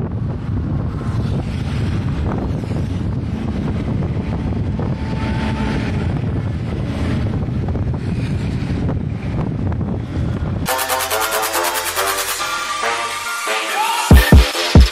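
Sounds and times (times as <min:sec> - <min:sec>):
motorcycle ride rumble: 0:00.0 - 0:10.7
wind buffeting microphone: 0:00.0 - 0:10.7.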